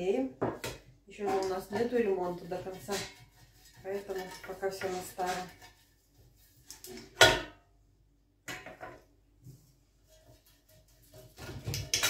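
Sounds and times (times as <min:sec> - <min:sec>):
kitchenware clatter: 0:00.4 - 0:05.8, 0:10.1 - 0:12.0.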